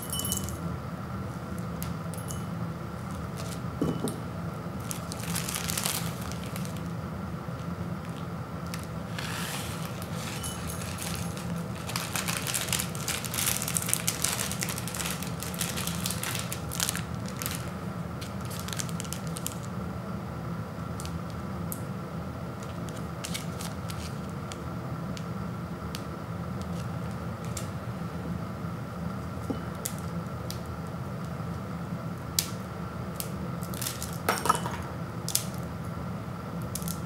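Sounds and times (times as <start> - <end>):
plastic wrapper crinkling: 3.0 - 3.7, 4.8 - 6.9, 8.0 - 19.7, 22.6 - 24.6.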